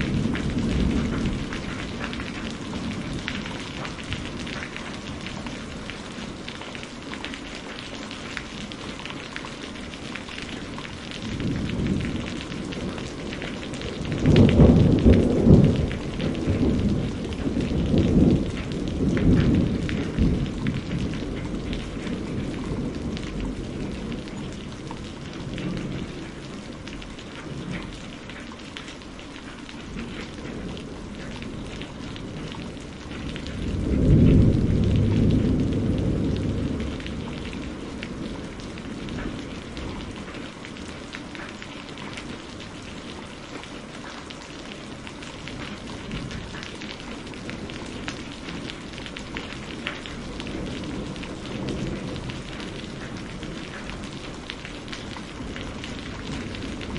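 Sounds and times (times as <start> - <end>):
thunder rolling: 0.0 - 6.5, 11.1 - 26.7, 29.9 - 40.4
rain falling: 0.0 - 56.9.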